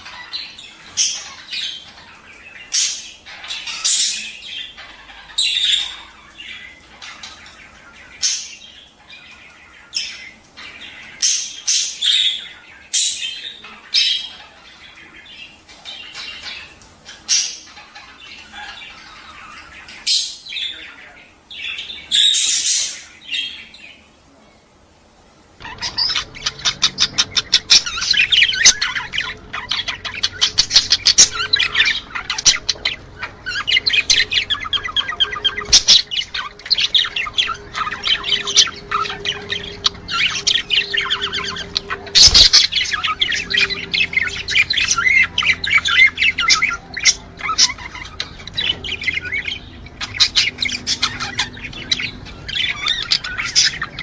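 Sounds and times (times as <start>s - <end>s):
budgerigars chirping chatter: 0.0s - 24.2s, 25.6s - 54.0s.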